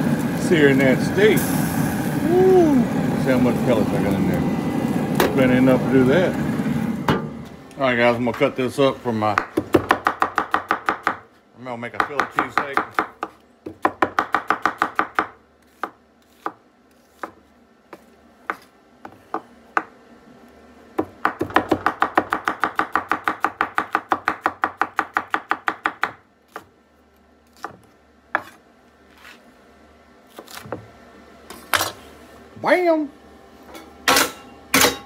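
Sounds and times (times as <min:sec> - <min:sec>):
knife chopping on wooden board: 0:09.3 - 0:11.3, 0:12.0 - 0:19.9, 0:21.0 - 0:26.7, 0:27.5 - 0:28.6.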